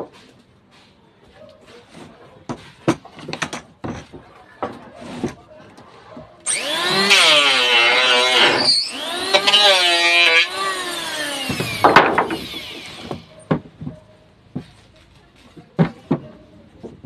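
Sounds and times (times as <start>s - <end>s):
electric hand planer whining: 6.5s - 13.3s.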